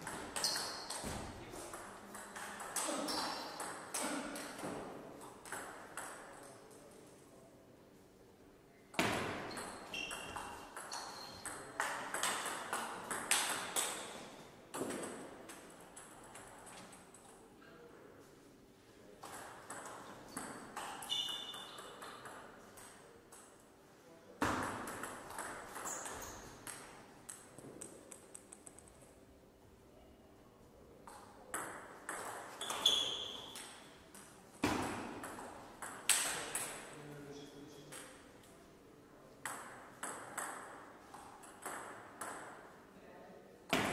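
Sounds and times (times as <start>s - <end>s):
table tennis ball hits: 0.0s - 6.4s, 8.9s - 16.5s, 19.2s - 23.5s, 24.4s - 29.0s, 31.1s - 36.9s, 39.4s - 42.7s, 43.7s - 43.9s
high squeak: 21.0s - 21.8s.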